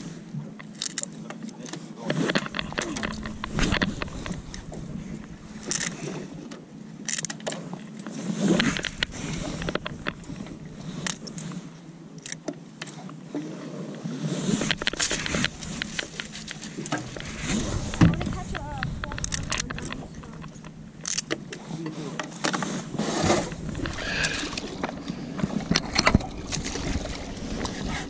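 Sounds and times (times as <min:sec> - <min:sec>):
steady low hum: 0:02.3 - 0:07.1, 0:08.5 - 0:12.2, 0:14.6 - 0:28.0.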